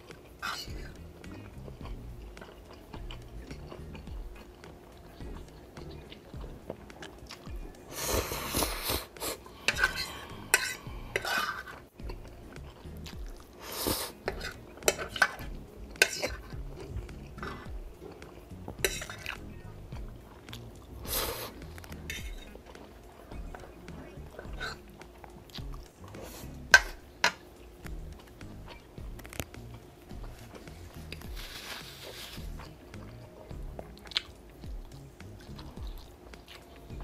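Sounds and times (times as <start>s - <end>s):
chewing noodles: 0.0s - 37.0s
fork scraping on ceramic plate: 8.0s - 11.8s.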